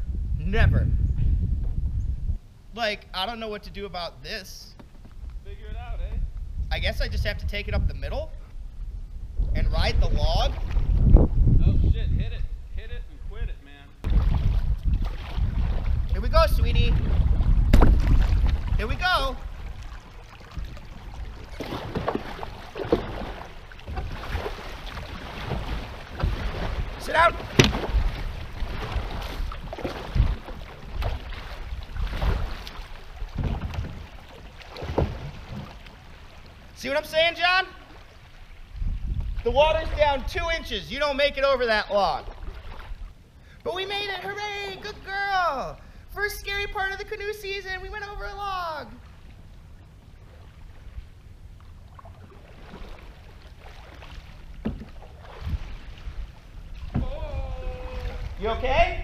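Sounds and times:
wind rumble on microphone: 0.0 - 2.8, 5.0 - 35.9, 38.3 - 41.5, 54.2 - 59.0
low thumps and knocks: 1.1 - 2.3, 14.0 - 18.9, 20.5 - 36.0, 54.6 - 55.7, 56.8 - 57.6
water rushing along canoe hull: 8.4 - 11.6, 14.0 - 59.0
short low knocks: 17.5 - 18.7, 25.4 - 29.1, 33.3 - 34.1, 56.8 - 57.6.

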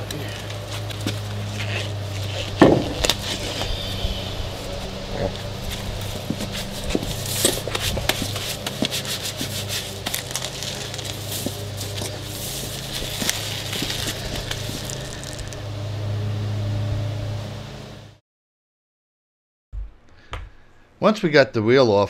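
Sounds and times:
wheel knocking and scraping: 0.0 - 15.6
steady low hum: 0.0 - 18.2.

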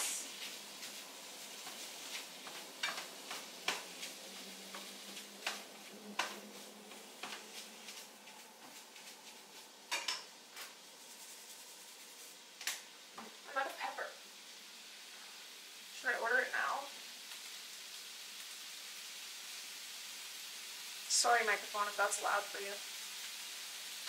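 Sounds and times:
food sizzling in a frying pan: 0.0 - 24.0
spatula scraping and knocking pan: 0.3 - 10.8.

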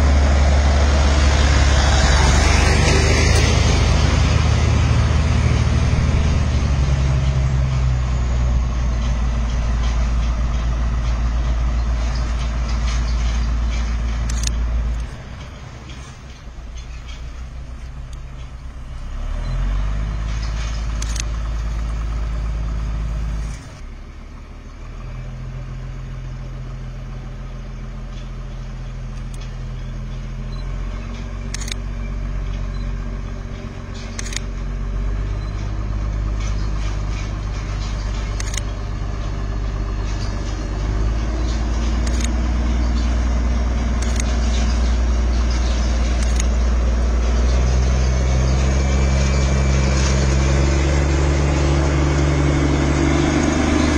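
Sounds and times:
train locomotive engine: 0.0 - 53.9
sharp clicks: 9.3 - 22.0, 28.5 - 34.6, 35.3 - 39.4, 40.0 - 46.9.

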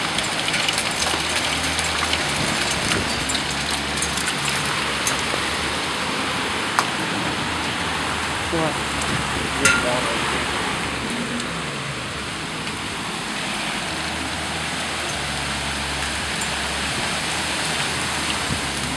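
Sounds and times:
hailstones knocking: 0.0 - 7.8, 8.9 - 10.3
heavy rain and hail hissing: 0.0 - 18.9.

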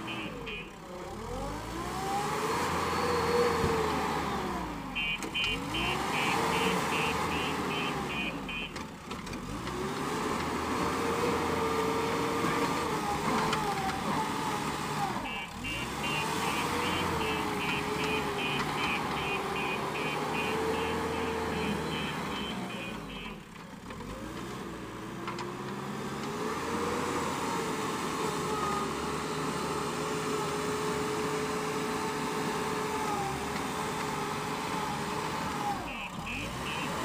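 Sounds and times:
diesel engine under load: 0.0 - 37.0
high beeping: 5.0 - 8.8, 15.3 - 23.3, 35.9 - 37.0.

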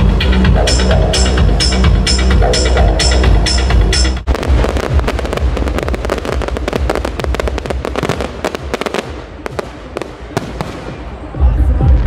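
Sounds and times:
fireworks crackling: 4.3 - 11.8.

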